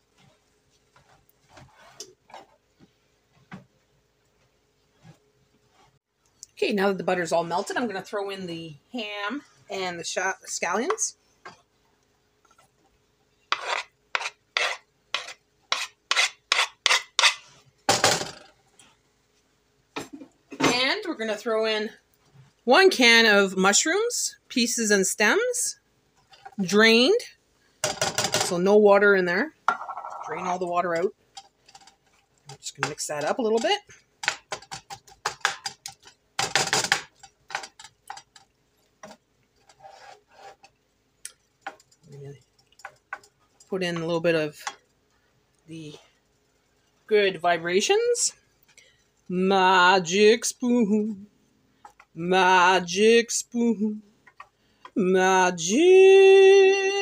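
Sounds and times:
wooden spoon scraping a frying pan: 0.0 - 2.6, 13.4 - 17.7, 29.7 - 36.2, 36.8 - 40.8
knife scraping wooden cutting board: 13.5 - 17.5, 39.6 - 40.7.

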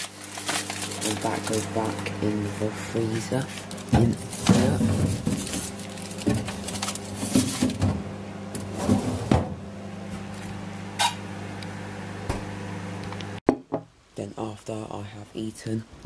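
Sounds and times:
foil wrapper rustling: 0.0 - 7.8
microwave oven humming: 0.0 - 13.4.

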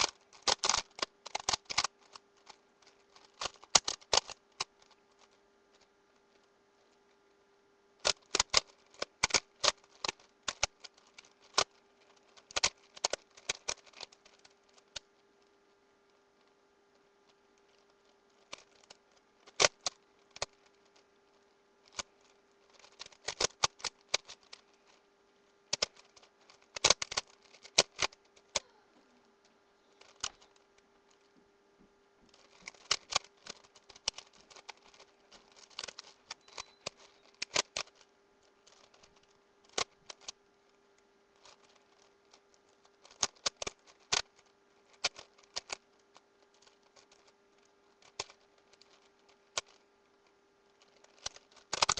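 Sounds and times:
puzzle cube clicking: 0.0 - 5.3, 8.0 - 15.0, 17.7 - 25.0, 25.7 - 28.8, 29.9 - 31.3, 32.3 - 38.0, 38.6 - 40.4, 41.4 - 45.9, 50.8 - 51.9.

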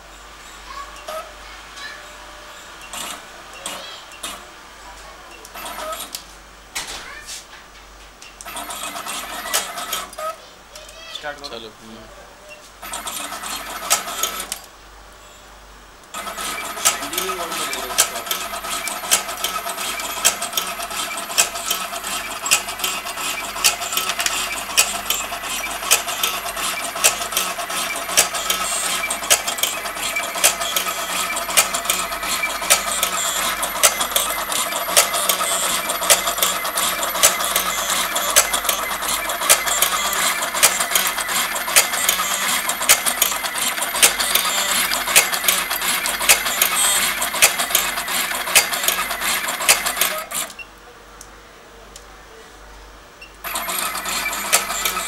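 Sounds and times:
steady motor hum: 16.0 - 50.6, 53.4 - 55.0
blades clicking shut: 31.5 - 50.6.

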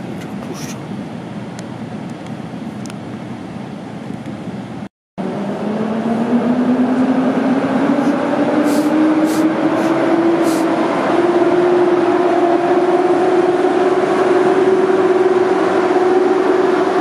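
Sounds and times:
train rumbling: 0.0 - 17.0
locomotive whine rising in pitch: 5.2 - 17.0.

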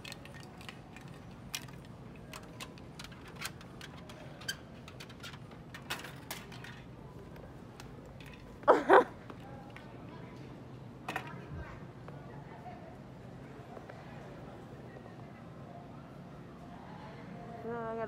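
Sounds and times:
low background hum: 0.0 - 18.0.

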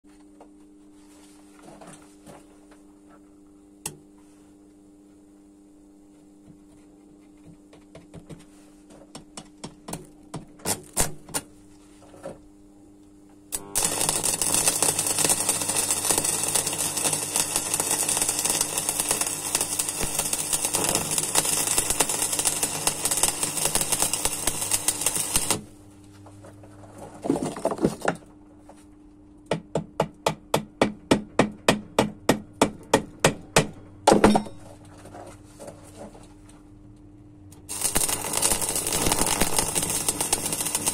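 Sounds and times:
welding arc crackling and sizzling: 10.7 - 11.7, 13.5 - 25.8, 37.6 - 40.9.

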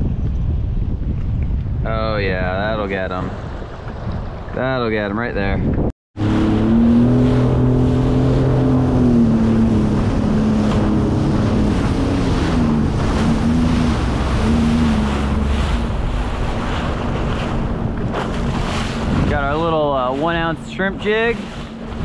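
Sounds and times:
wind and water: 0.0 - 22.0
personal watercraft engine humming: 6.2 - 22.0.

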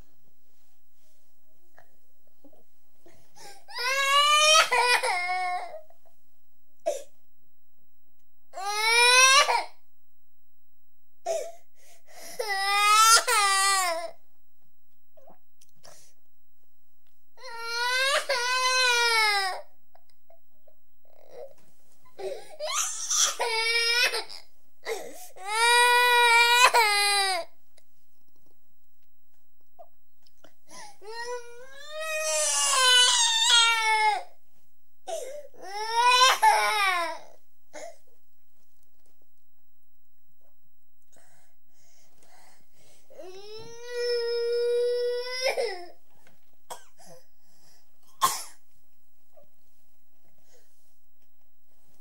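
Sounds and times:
toddler crying: 35.6 - 37.4.

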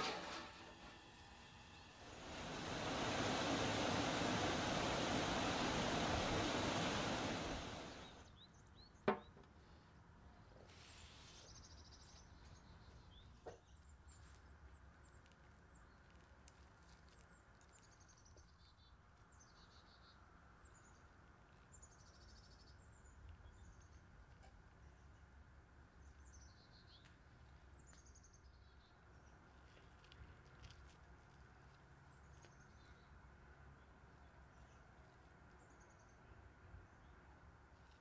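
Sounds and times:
water rushing over waterfall: 2.0 - 8.2.

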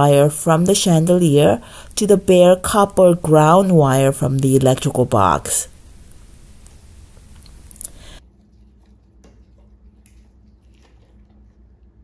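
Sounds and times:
wires clicking and rustling: 6.0 - 8.0.

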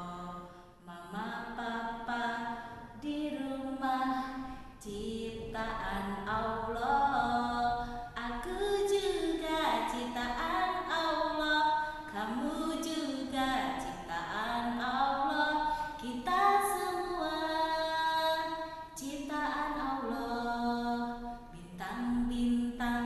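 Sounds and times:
woman singing unaccompanied: 0.0 - 23.0.

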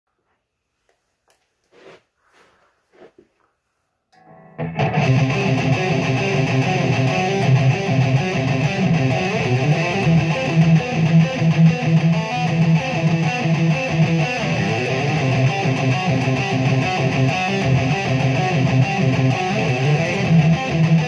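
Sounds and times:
distorted electric guitar riff: 4.2 - 21.0.

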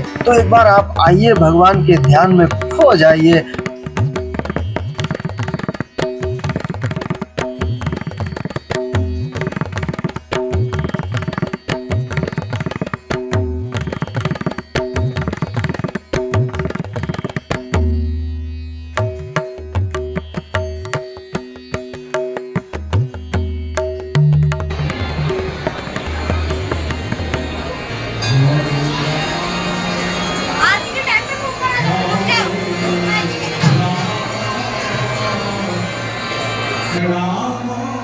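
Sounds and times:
busy drum rhythm: 0.0 - 18.0
steady held notes: 0.0 - 38.0.

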